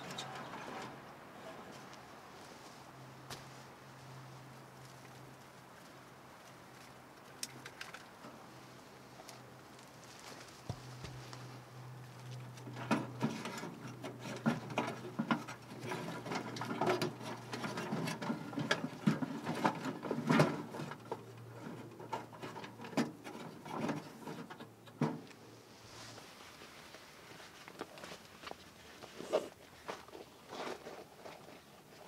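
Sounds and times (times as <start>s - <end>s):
dry twigs crackling and snapping: 6.4s - 8.2s.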